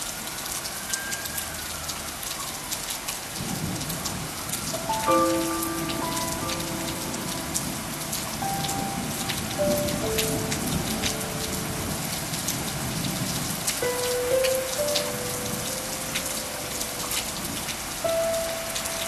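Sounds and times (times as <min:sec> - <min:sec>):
steady rain: 0:00.0 - 0:19.0
soft sustained music notes: 0:04.7 - 0:12.9, 0:13.7 - 0:19.0.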